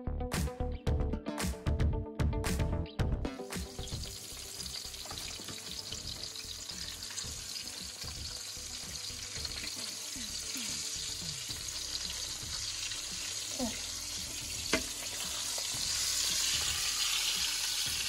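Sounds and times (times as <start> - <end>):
fish sizzling in a frying pan: 3.6 - 18.0.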